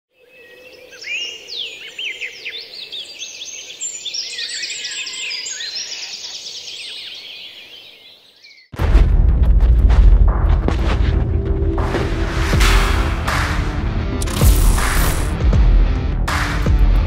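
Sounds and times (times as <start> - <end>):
chorus of birds chirping: 0.1 - 8.7.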